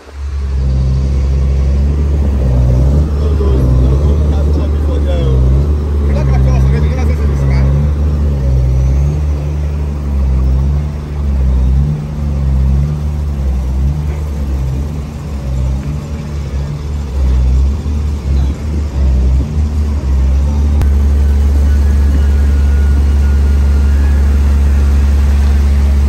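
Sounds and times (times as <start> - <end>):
diesel truck engine running: 0.0 - 26.0.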